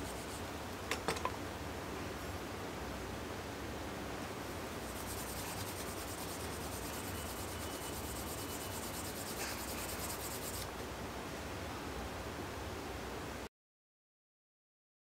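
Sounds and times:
hand rubbing leather edge: 0:04.8 - 0:10.7.

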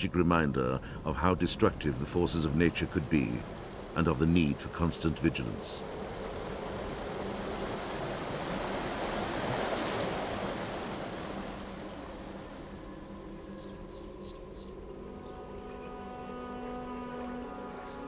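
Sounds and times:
soft music: 0:00.0 - 0:08.8, 0:11.2 - 0:18.0
rushing floodwater: 0:00.0 - 0:14.0
bird chirps: 0:13.5 - 0:15.4.

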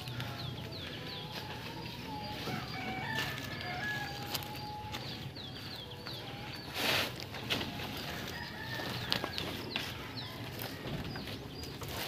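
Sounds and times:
rooster crowing: 0:02.4 - 0:04.6, 0:08.2 - 0:10.9.

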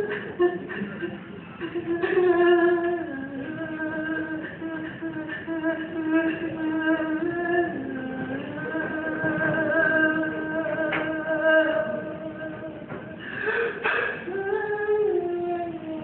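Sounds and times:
person singing long notes: 0:00.0 - 0:16.0.

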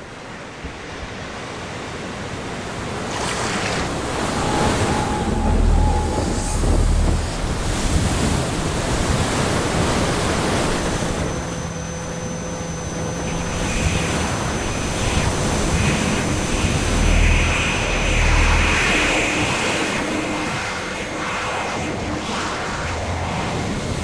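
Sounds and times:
ocean surf breaking: 0:02.4 - 0:11.4.

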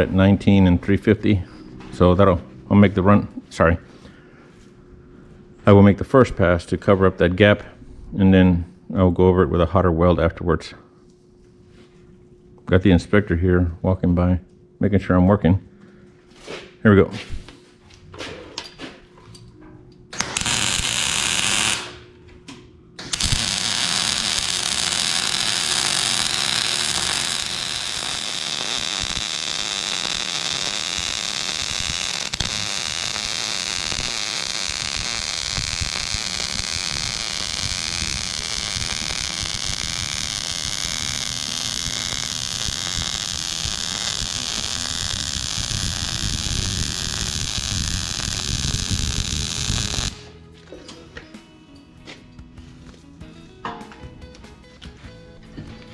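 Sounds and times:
welding arc crackling hiss: 0:20.2 - 0:22.0, 0:23.0 - 0:50.2.

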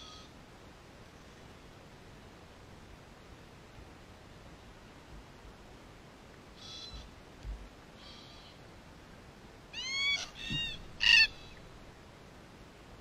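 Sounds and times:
cockatoos calling: 0:09.7 - 0:11.8.

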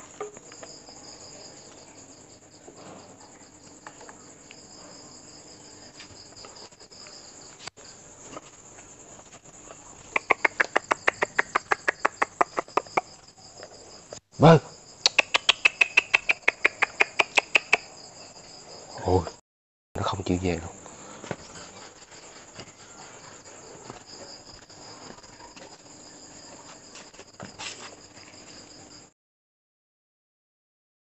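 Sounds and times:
crickets chirring: 0:00.0 - 0:19.4, 0:20.0 - 0:29.1.

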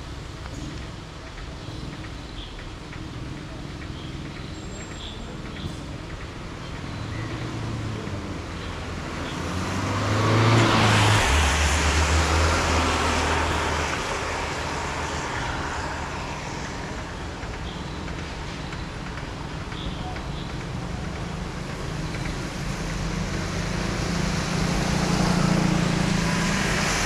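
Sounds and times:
vehicle passing on wet road: 0:07.5 - 0:19.1, 0:21.2 - 0:27.0.

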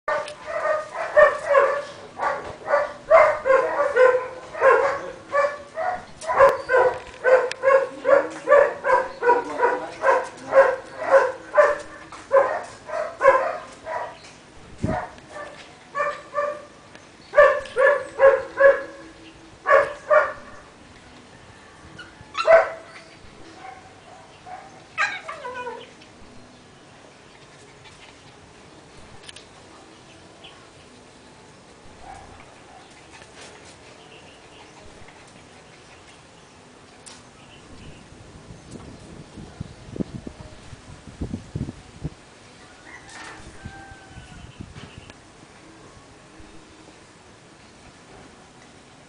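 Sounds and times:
puppy barking: 0:00.1 - 0:14.2, 0:14.9 - 0:16.7, 0:17.4 - 0:19.0, 0:19.7 - 0:20.6, 0:22.4 - 0:22.9, 0:23.6 - 0:25.8.

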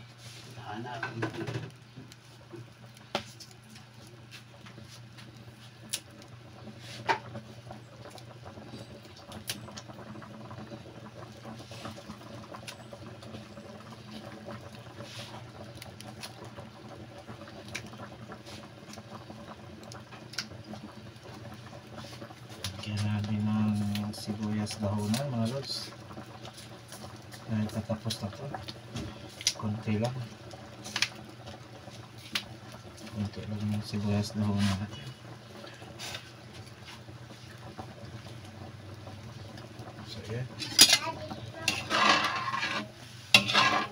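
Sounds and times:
broth bubbling in a pot: 0:00.0 - 0:43.9.

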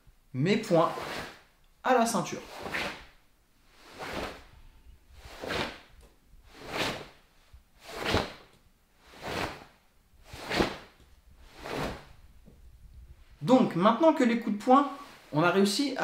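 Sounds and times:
sleeves swishing with punches: 0:00.8 - 0:01.4, 0:02.4 - 0:03.1, 0:03.9 - 0:04.4, 0:05.2 - 0:05.9, 0:06.6 - 0:07.2, 0:07.8 - 0:08.5, 0:09.1 - 0:09.7, 0:10.3 - 0:11.0, 0:11.6 - 0:12.1.

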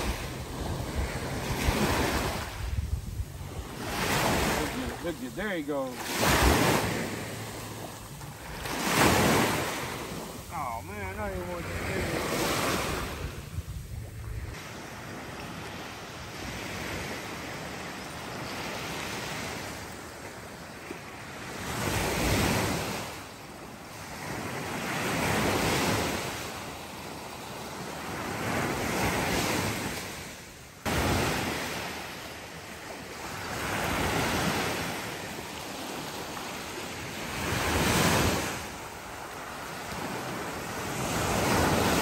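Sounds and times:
wind noise: 0:00.0 - 0:05.6, 0:12.6 - 0:14.6
small waves breaking on beach: 0:00.0 - 0:42.0.

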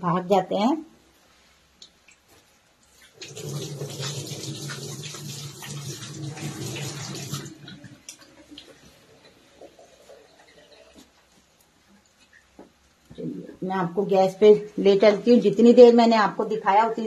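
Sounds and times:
water dripping: 0:01.7 - 0:13.5.

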